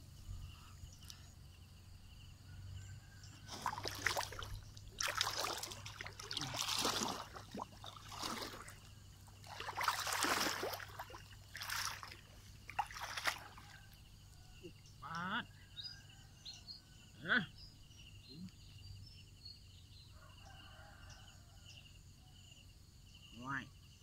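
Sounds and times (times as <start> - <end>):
legs wading through water: 3.3 - 14.0.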